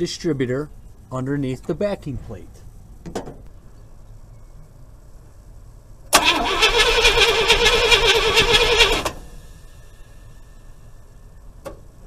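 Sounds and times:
engine starter cranking: 6.1s - 9.4s.

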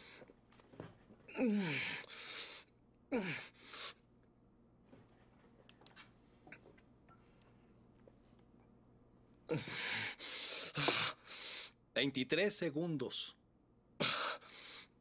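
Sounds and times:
man gasping and groaning: 1.3s - 2.2s, 3.1s - 3.6s, 9.5s - 11.3s.

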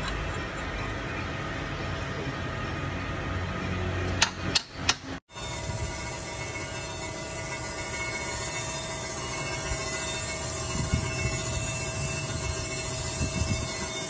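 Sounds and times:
grinding machine humming: 0.0s - 14.0s
hiss of grinding: 5.3s - 14.0s.

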